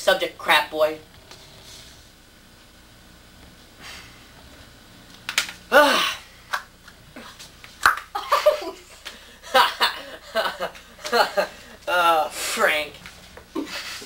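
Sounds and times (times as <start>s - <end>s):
person vocal exclamation: 5.7s - 6.2s
person speaking: 11.0s - 13.1s.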